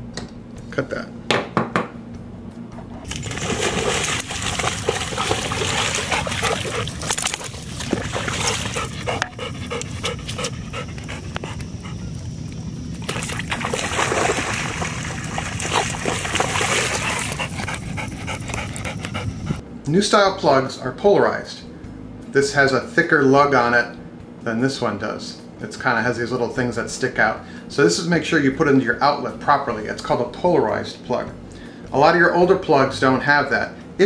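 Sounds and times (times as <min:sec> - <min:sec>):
dog panting: 0:02.9 - 0:12.8, 0:14.6 - 0:19.6
water splashing and dripping: 0:03.1 - 0:11.6, 0:12.4 - 0:18.3.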